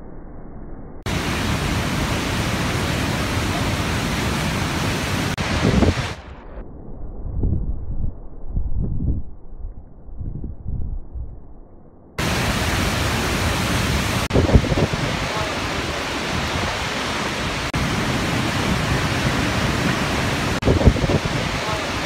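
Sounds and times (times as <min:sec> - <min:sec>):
waterfall roaring: 0:01.1 - 0:06.2, 0:12.2 - 0:22.0
muffled low rumble: 0:06.0 - 0:12.0.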